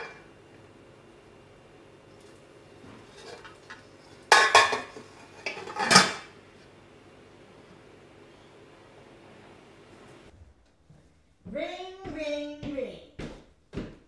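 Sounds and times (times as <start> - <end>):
pan lid clanking: 4.3 - 6.3.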